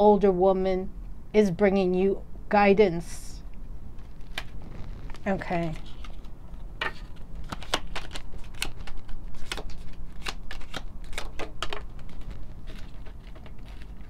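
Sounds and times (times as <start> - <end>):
cards being shuffled: 4.0 - 14.0.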